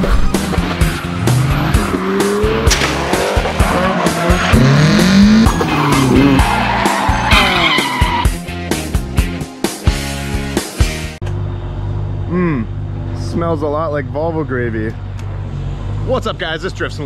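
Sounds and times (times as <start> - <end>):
car engines revving: 0.0 - 8.6, 11.2 - 17.0
music with heavy beat: 0.3 - 11.2
tyres squealing: 3.6 - 8.4.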